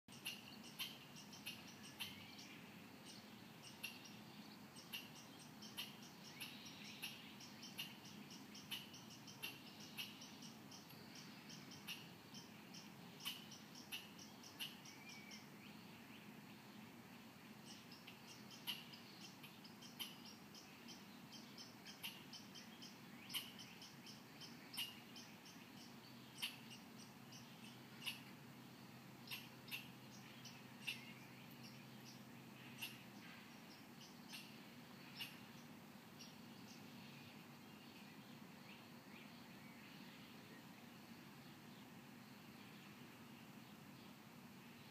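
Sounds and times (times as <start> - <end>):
squirrel chirping: 0.1 - 15.5, 17.6 - 28.4, 29.2 - 36.8
squirrel barking: 32.8 - 33.0.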